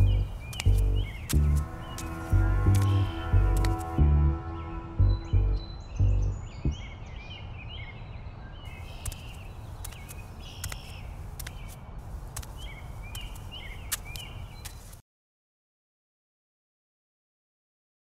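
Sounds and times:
sharp clicks: 0:00.0 - 0:01.6, 0:09.0 - 0:14.8
low steady rumble: 0:00.0 - 0:06.9
birds chirping: 0:00.0 - 0:15.0.

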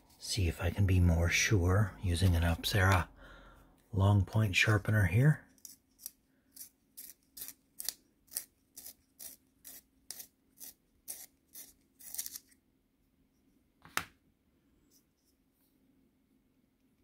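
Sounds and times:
pencil sharpener shaving wood: 0:05.5 - 0:12.6.

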